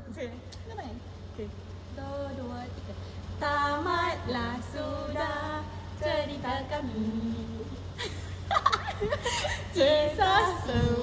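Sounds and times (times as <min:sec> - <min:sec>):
women singing: 0:01.9 - 0:08.0, 0:09.4 - 0:11.0.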